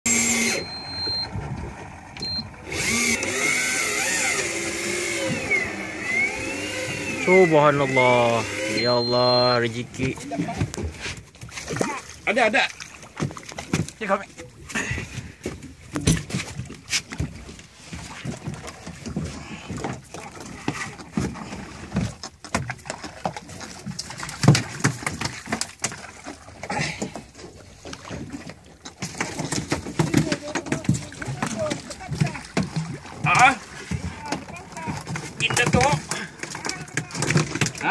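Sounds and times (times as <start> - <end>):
electric reel motor whining: 0.1 - 1.2, 2.2 - 9.4
short high-pitched tones: 0.1 - 1.3, 2.2 - 3.2, 8.2 - 9.6
fish thumping on boat deck: 29.0 - 37.9.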